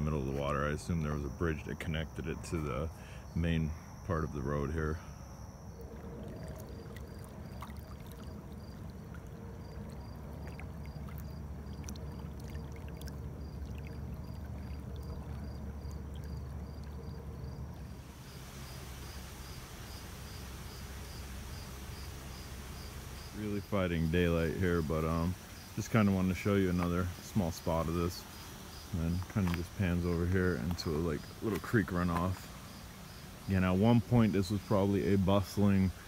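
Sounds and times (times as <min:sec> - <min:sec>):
crickets chirping: 0:00.0 - 0:36.0
low steady rumble: 0:00.0 - 0:36.0
bright hiss: 0:18.0 - 0:29.1.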